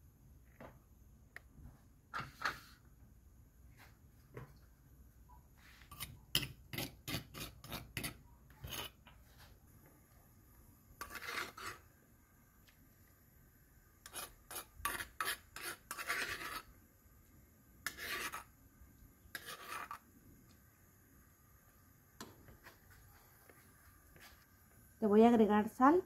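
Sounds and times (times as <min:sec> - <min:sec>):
metal spoon scraping stone bowl: 0:05.9 - 0:09.1, 0:11.0 - 0:11.8, 0:14.0 - 0:16.7, 0:17.8 - 0:18.5, 0:19.3 - 0:20.0.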